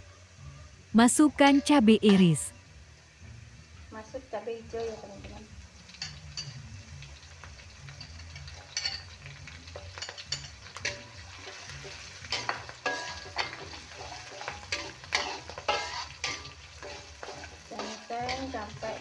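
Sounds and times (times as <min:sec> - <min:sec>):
vegetables sizzling in hot oil: 0:02.6 - 0:19.0
metal spatula scraping a wok: 0:07.2 - 0:19.0.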